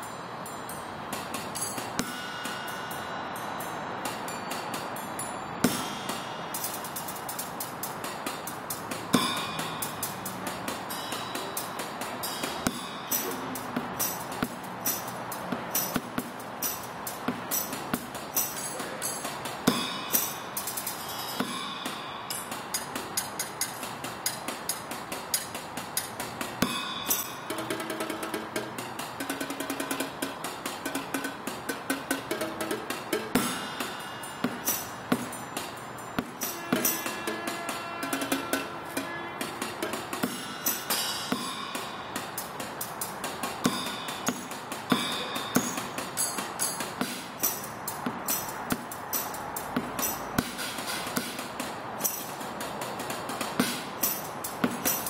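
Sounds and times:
drums and cymbals: 0:00.0 - 0:55.0
held pitched notes: 0:26.6 - 0:48.5.

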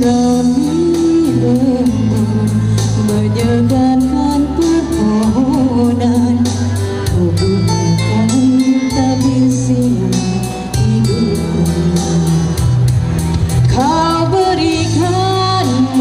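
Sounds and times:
amplified instrumental accompaniment: 0:00.0 - 0:16.0
woman singing into a microphone: 0:00.0 - 0:16.0.

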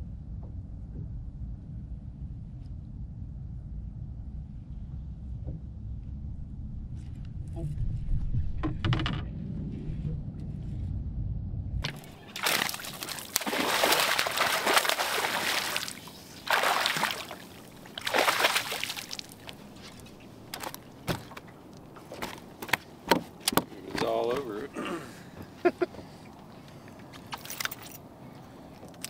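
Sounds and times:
low rumble: 0:00.0 - 0:13.0
fish splashing in water: 0:11.8 - 0:22.5
fish flopping on deck: 0:11.8 - 0:24.1.

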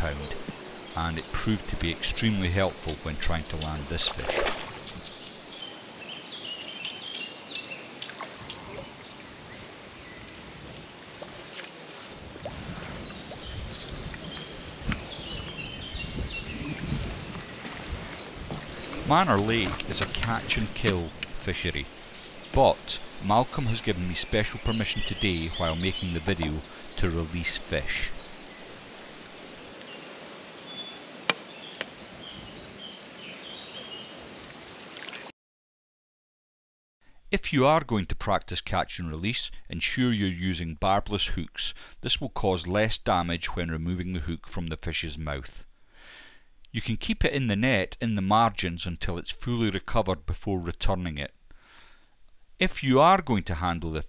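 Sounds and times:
background hiss: 0:00.0 - 0:08.0, 0:18.0 - 0:34.8, 0:39.2 - 0:42.7, 0:45.3 - 0:46.9, 0:51.2 - 0:53.0
small birds chirping: 0:00.0 - 0:35.2
water splashing and sloshing: 0:01.4 - 0:05.8, 0:06.6 - 0:29.8, 0:34.4 - 0:35.3.

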